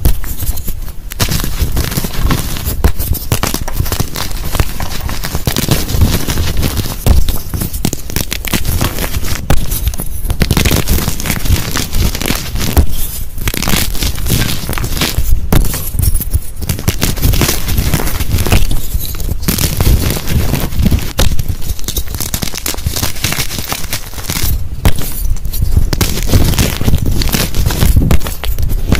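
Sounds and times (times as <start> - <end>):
chalk crunching by hand: 0.0 - 28.9.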